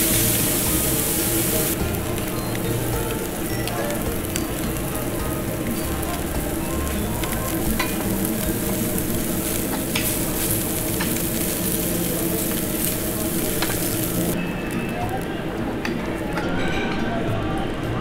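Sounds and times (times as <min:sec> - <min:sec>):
meat sizzling on a grill plate: 0:00.0 - 0:15.2
metal tongs clicking: 0:07.2 - 0:11.8.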